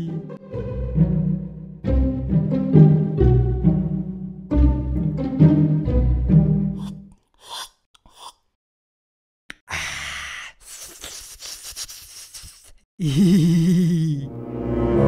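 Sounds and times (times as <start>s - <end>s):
lip smacking: 6.8s - 8.6s
man slurping drink: 6.8s - 8.6s
man sighing: 13.0s - 14.3s.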